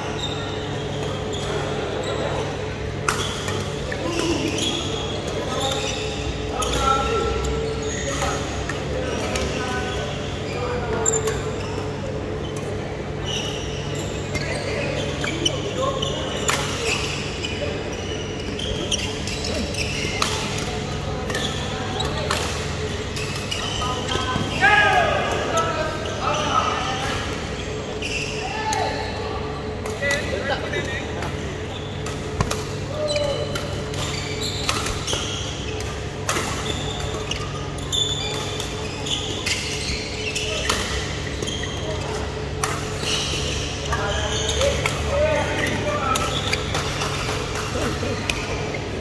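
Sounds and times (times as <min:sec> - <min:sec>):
sneaker squeaks on court: 0:00.0 - 0:08.7, 0:13.2 - 0:24.6, 0:31.3 - 0:47.4
racket hitting shuttlecock: 0:32.1 - 0:32.8.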